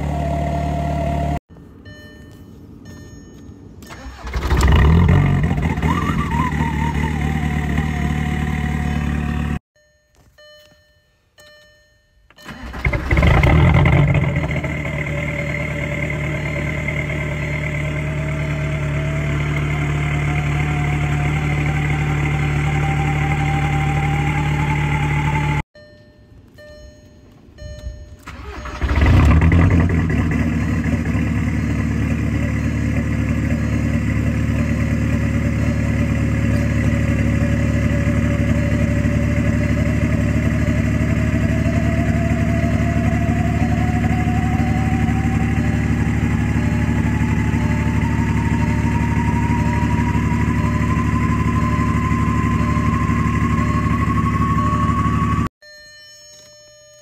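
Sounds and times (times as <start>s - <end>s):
diesel engine idling: 0.0s - 2.0s, 3.8s - 9.6s, 12.4s - 25.6s, 27.6s - 55.5s
faint beeps: 1.6s - 4.2s, 9.8s - 12.8s, 13.5s - 20.6s, 25.8s - 28.8s, 29.7s - 57.0s
engine cranking and starting: 3.8s - 9.2s, 12.3s - 25.6s, 28.1s - 55.4s.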